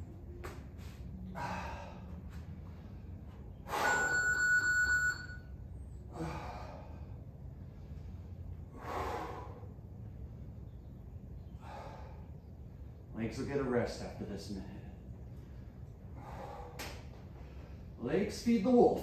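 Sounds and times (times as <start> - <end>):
man exhaling forcefully: 6.1 - 7.1, 8.7 - 9.7.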